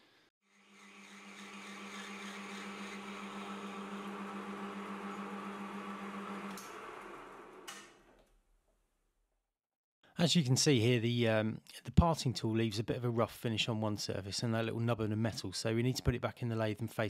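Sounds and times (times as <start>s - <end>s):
metal lathe humming: 0.5s - 7.9s.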